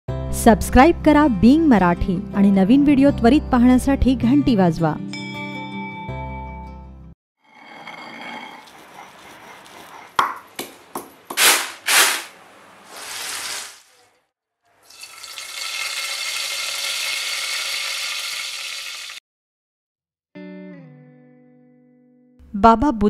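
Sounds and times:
leaves frying in hot oil: 0:11.4 - 0:13.9, 0:14.8 - 0:19.2.

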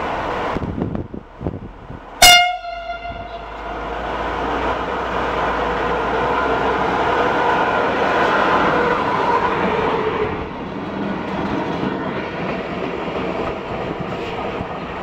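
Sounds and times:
train rumbling: 0:00.0 - 0:15.0
train horn blast: 0:02.2 - 0:03.9.

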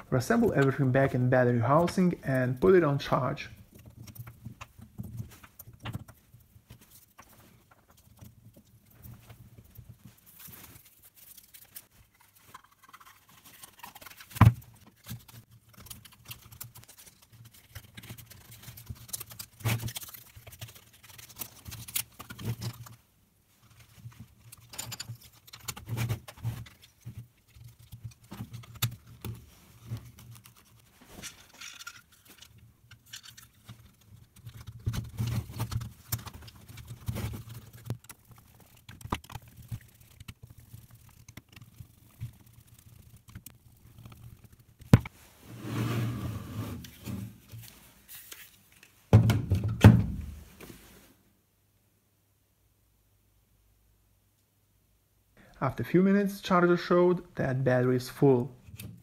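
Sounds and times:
plastic clicks and rubbing: 0:23.6 - 0:45.1.

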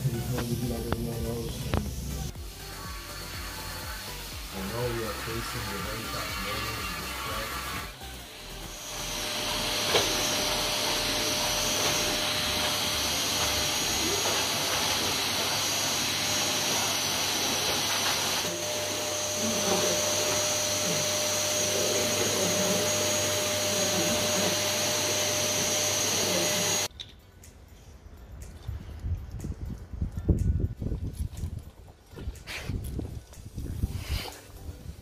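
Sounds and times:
vacuum cleaner running: 0:00.0 - 0:26.9.

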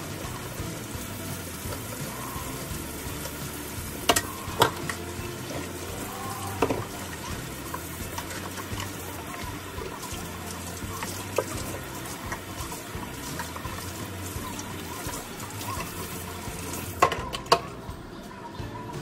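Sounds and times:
faucet running into sink: 0:00.0 - 0:17.7
dishes clattering: 0:06.6 - 0:09.0, 0:10.9 - 0:17.7.

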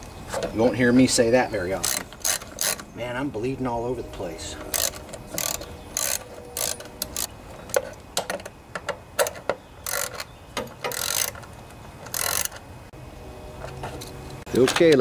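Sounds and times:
ratchet wrench clicking: 0:01.8 - 0:02.9, 0:04.7 - 0:07.3, 0:09.2 - 0:12.6.

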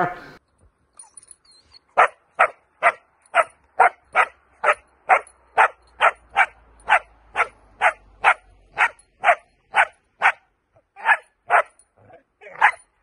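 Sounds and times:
puppy barking: 0:01.9 - 0:12.9.

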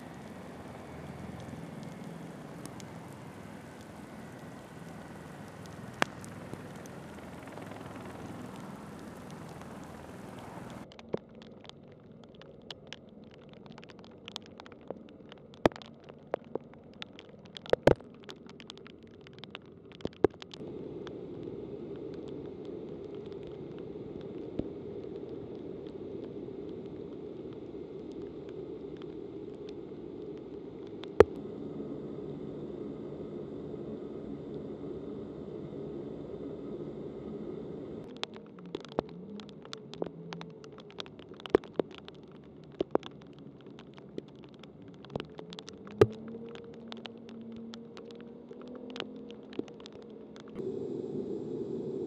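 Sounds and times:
heavy rain hiss: 0:00.0 - 0:10.8, 0:50.6 - 0:52.0
low machine hum: 0:00.0 - 0:10.9, 0:20.6 - 0:48.5, 0:50.6 - 0:52.0
sharp taps of raindrops: 0:00.0 - 0:21.2, 0:22.0 - 0:31.4, 0:38.0 - 0:50.6.

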